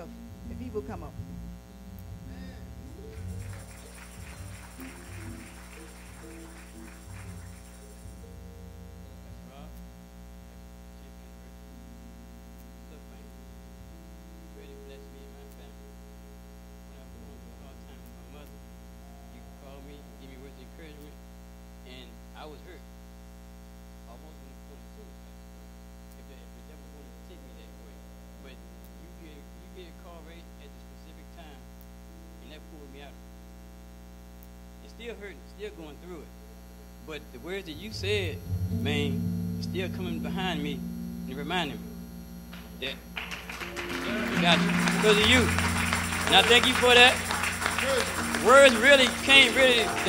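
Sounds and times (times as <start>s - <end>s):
soft held musical notes: 0.0s - 9.9s, 11.0s - 21.2s, 37.0s - 50.0s
electrical mains hum: 0.0s - 50.0s
faint quiet speech: 9.0s - 9.8s, 10.8s - 11.9s, 12.8s - 13.4s, 14.5s - 16.0s, 16.9s - 18.6s, 19.2s - 21.2s, 21.8s - 22.8s, 24.1s - 25.4s, 26.2s - 31.6s.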